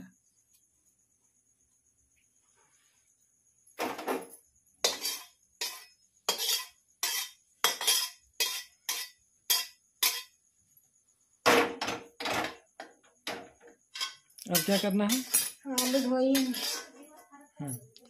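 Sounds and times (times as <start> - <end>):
metal spatula scraping steel pan: 4.8 - 10.3, 13.9 - 17.0.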